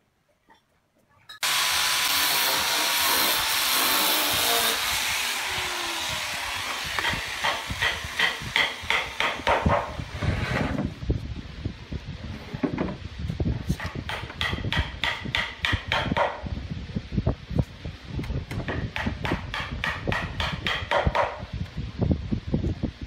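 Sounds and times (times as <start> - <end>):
angle grinder sanding wood: 1.4 - 9.2.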